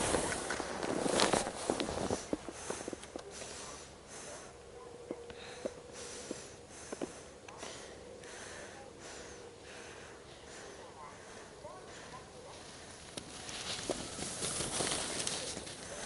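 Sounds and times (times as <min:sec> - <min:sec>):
faint steady hum: 0:00.0 - 0:16.0
breathing close to microphone: 0:01.2 - 0:04.6, 0:05.3 - 0:13.0.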